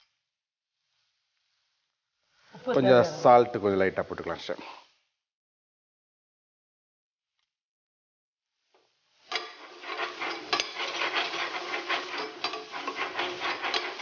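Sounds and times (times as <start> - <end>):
food sizzling: 2.3 - 3.8, 9.1 - 14.0
spatula scraping frying pan: 9.2 - 14.0.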